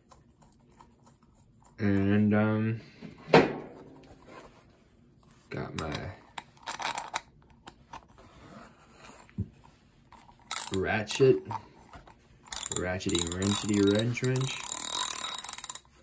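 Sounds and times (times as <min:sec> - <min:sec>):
ratchet wrench clicking: 0:10.5 - 0:11.3, 0:12.5 - 0:16.0.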